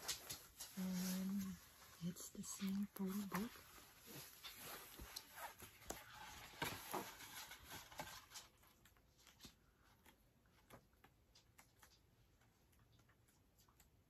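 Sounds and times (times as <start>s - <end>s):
photo book pages flipping: 2.7s - 9.7s.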